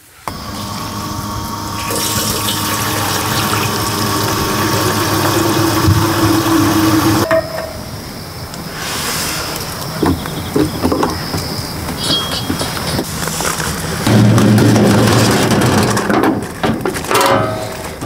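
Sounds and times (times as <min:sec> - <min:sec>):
water running from tap: 0:01.3 - 0:07.2.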